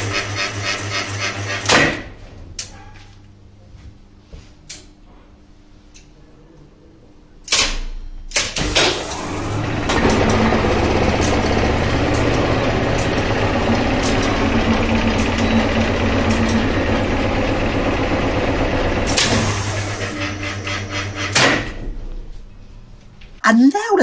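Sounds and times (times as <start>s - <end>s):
lift motor humming: 0.0s - 1.7s, 8.6s - 22.9s.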